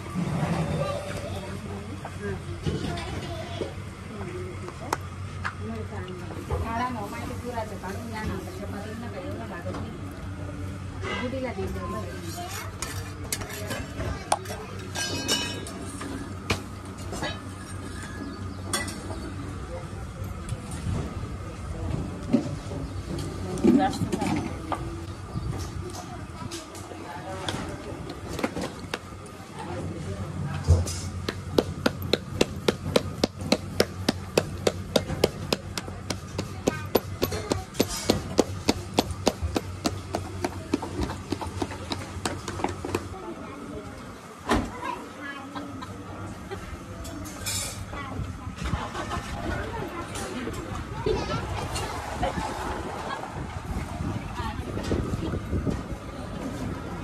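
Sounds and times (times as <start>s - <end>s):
metal spatula scraping griddle: 12.2s - 14.0s.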